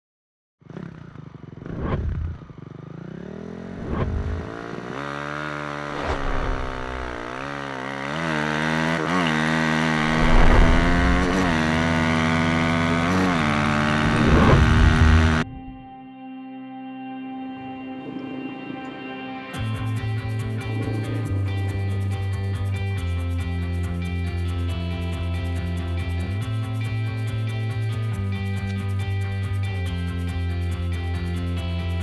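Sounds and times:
dirt bike engine revving: 0.6 - 15.5.

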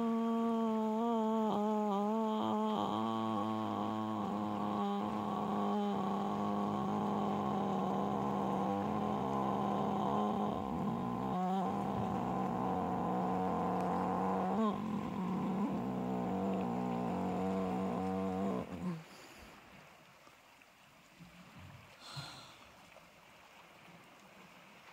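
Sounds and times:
person humming low note: 0.0 - 19.1.

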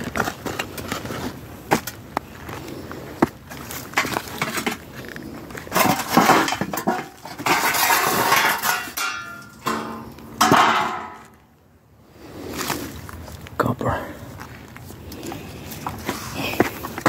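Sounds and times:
concrete rubble clattering: 0.0 - 11.4.

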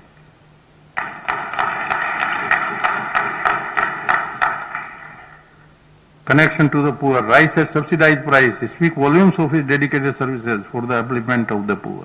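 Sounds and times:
audience applauding: 1.0 - 5.4.

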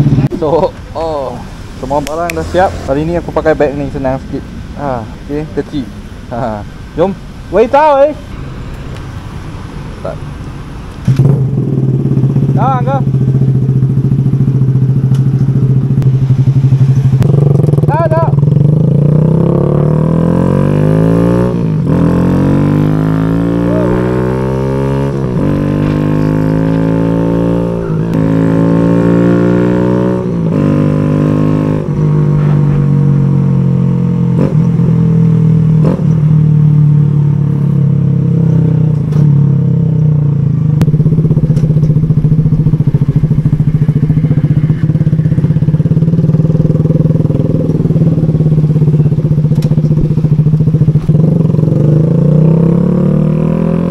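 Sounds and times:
motorcycle engine shifting gears: 10.9 - 53.9.

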